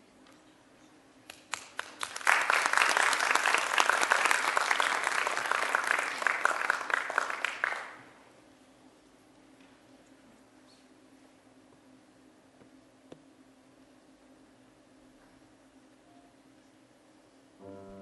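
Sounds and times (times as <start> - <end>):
audience applauding: 1.3 - 8.1.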